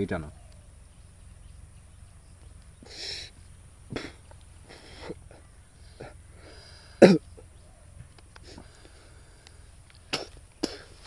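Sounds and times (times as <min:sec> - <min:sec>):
man inhaling sharply through mouth: 0:02.8 - 0:07.1.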